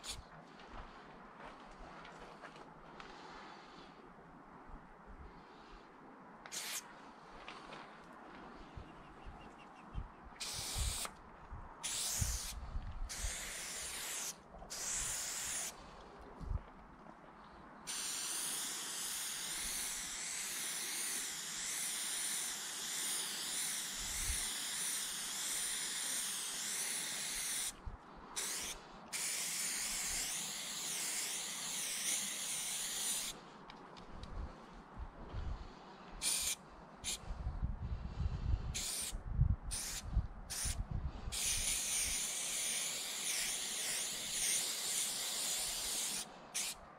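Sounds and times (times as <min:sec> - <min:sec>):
spray paint can hissing: 0:00.0 - 0:00.2, 0:06.5 - 0:06.8, 0:10.4 - 0:11.2, 0:11.8 - 0:15.8, 0:17.9 - 0:27.8, 0:28.4 - 0:33.4, 0:36.2 - 0:37.2, 0:38.8 - 0:46.8.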